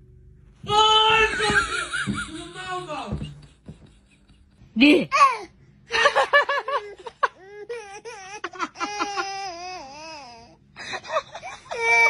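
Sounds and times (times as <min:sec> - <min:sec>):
baby crying: 0:05.1 - 0:05.5, 0:06.7 - 0:10.6, 0:11.3 - 0:12.0.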